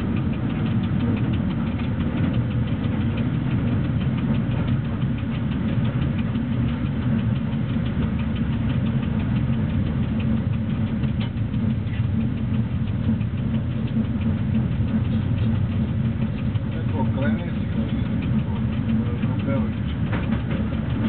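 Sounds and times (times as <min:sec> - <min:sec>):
faint fast ticking: 0:00.0 - 0:21.0
locomotive running rumble: 0:00.0 - 0:21.0.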